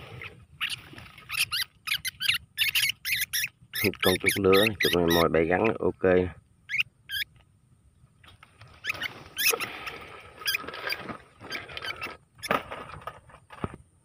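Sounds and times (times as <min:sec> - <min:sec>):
rat squeaking: 0:00.2 - 0:05.8, 0:06.6 - 0:07.4, 0:08.7 - 0:09.7, 0:10.4 - 0:12.6.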